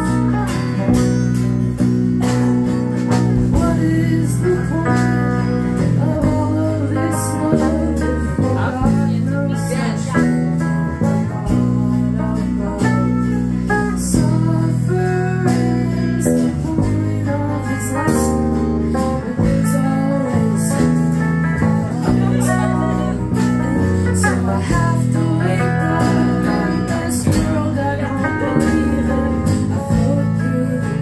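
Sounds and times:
drum and cymbal hits: 0.0s - 9.1s
live rock band playing: 0.0s - 31.0s.

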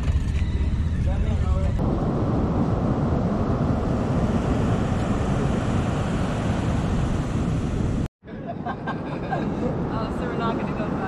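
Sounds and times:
wind rumbling on microphone: 0.0s - 11.0s
ocean surf washing onto beach: 1.8s - 8.1s.

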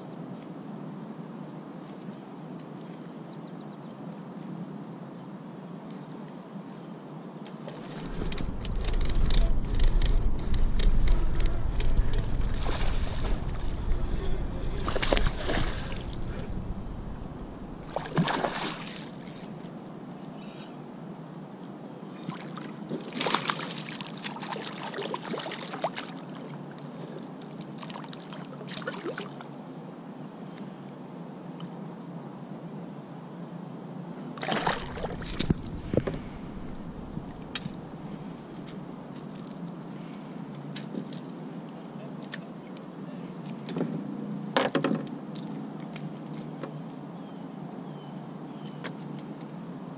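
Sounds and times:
water splashing around kayak: 7.7s - 19.3s, 22.3s - 26.5s, 34.4s - 38.2s
fish thrashing at surface: 7.8s - 19.2s, 34.4s - 37.8s.

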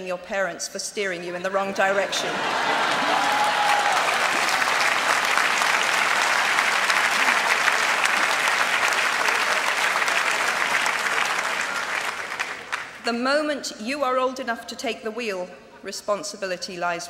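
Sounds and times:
crowd applauding: 2.0s - 13.0s.

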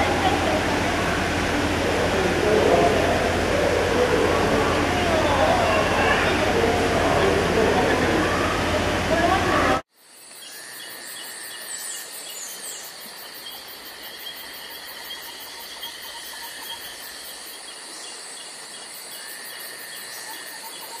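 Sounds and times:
insects chirping: 9.9s - 21.0s.

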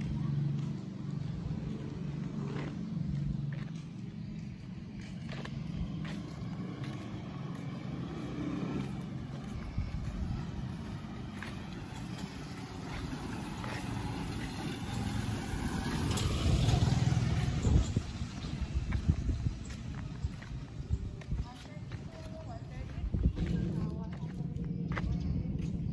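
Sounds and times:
motorcycle engine passing: 5.3s - 24.2s.

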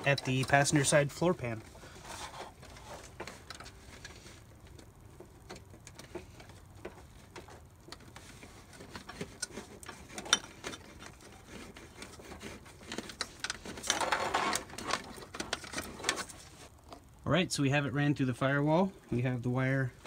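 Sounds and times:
scraping rustle: 0.0s - 5.0s, 6.0s - 16.8s.

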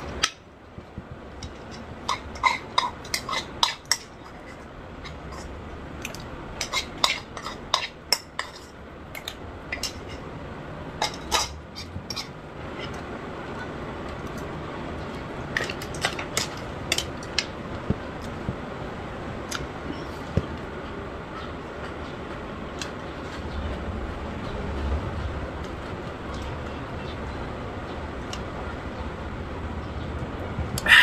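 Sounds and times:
steady background noise: 0.0s - 31.0s
cutlery clinking against dishes: 1.4s - 10.2s, 11.0s - 13.0s, 15.6s - 17.5s.

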